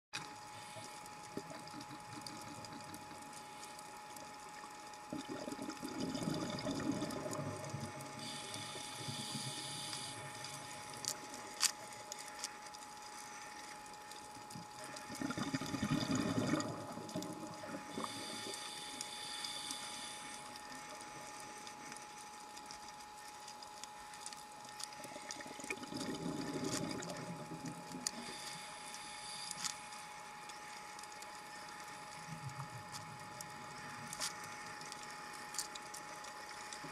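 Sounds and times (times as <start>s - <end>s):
thin steady tone: 0.2s - 36.9s
bubbling regulator exhalations: 5.0s - 10.5s, 14.6s - 18.6s, 25.3s - 28.4s.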